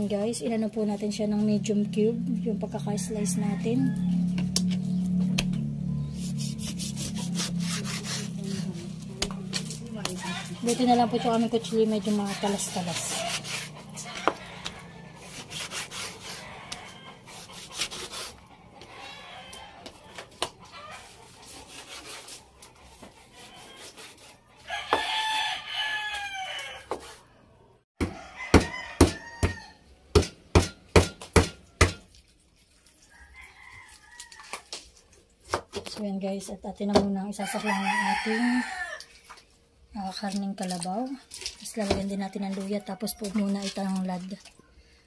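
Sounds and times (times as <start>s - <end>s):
rooster crowing: 2.8s - 4.5s, 10.0s - 15.5s, 16.1s - 17.5s, 18.6s - 21.2s, 24.6s - 27.3s, 28.0s - 29.8s, 33.1s - 34.7s, 37.4s - 39.1s
sharp knife chops: 30.2s - 32.1s.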